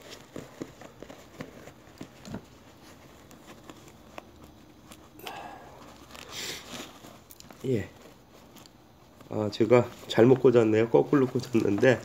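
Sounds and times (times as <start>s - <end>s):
sliding fabric rustle: 0.0s - 12.0s.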